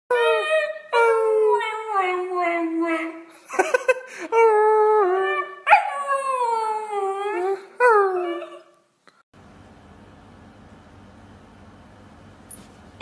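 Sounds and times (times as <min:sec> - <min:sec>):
dog howling: 0:04.8 - 0:08.7.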